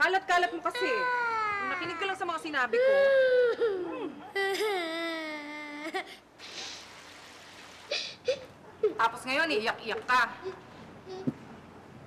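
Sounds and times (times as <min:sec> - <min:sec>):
young boy crying: 0:00.5 - 0:06.3, 0:10.4 - 0:11.4.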